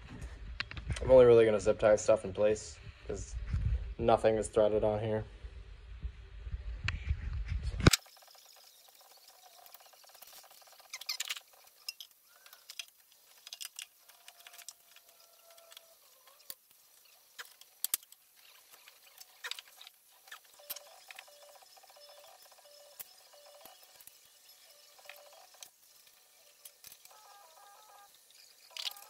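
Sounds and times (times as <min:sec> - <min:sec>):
small parts clicking and rattling: 0:07.9 - 0:29.0.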